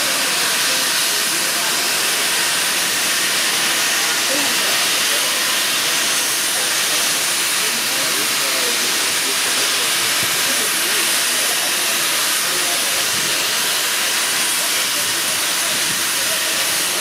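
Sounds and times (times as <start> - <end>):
faint voices: 0.0 - 17.0
steam locomotive venting steam: 0.0 - 17.0.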